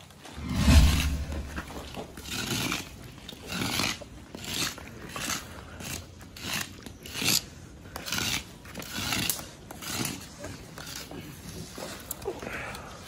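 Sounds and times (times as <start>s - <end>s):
metal rod raking through ash: 0.4s - 4.7s.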